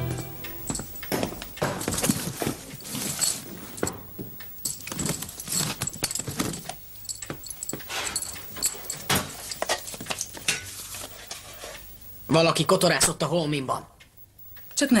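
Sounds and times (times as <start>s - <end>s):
footsteps on wooden floor: 0.1s - 2.8s
rummaging through suitcase: 0.7s - 4.1s, 4.7s - 11.2s.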